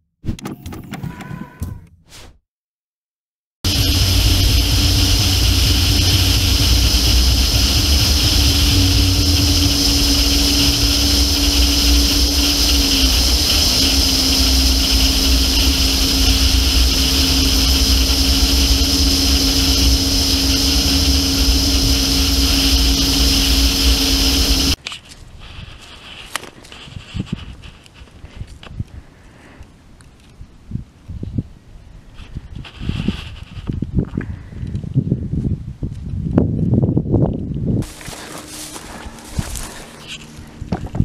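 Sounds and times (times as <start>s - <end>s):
steady hum: 3.6s - 24.8s, 37.8s - 41.0s
vehicle driving on sand: 3.6s - 24.8s
wind rushing over camera: 30.3s - 38.0s.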